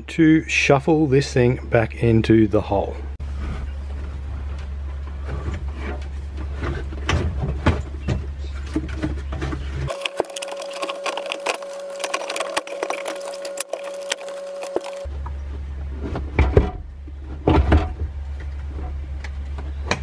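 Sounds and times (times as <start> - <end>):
plastic parts knocking and creaking: 3.6 - 15.3.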